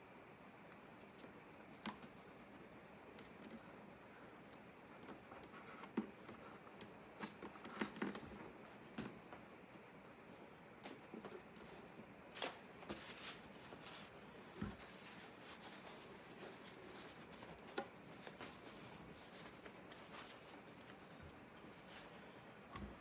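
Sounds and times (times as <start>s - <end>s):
paper towel rustling: 9.8s - 23.0s.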